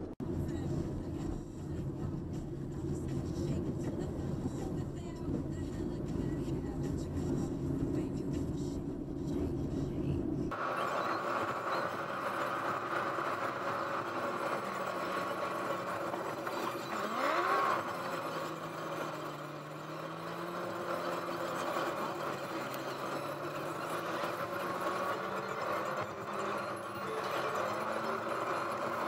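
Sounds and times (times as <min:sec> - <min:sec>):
car engine: 0:00.0 - 0:29.0
road noise inside car: 0:00.0 - 0:29.0.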